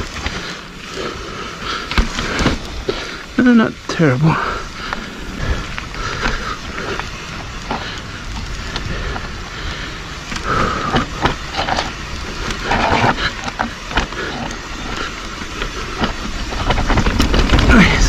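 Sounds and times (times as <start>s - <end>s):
bike clattering over roots: 0.0s - 18.0s
bike rumbling on trail: 0.0s - 18.0s.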